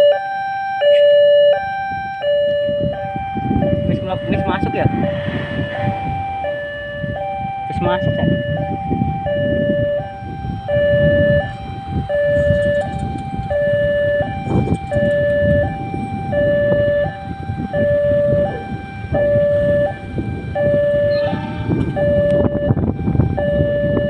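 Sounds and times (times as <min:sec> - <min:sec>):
two-tone crossing alarm: 0:00.0 - 0:24.0
low rumbling noise: 0:03.2 - 0:09.6, 0:20.0 - 0:23.4.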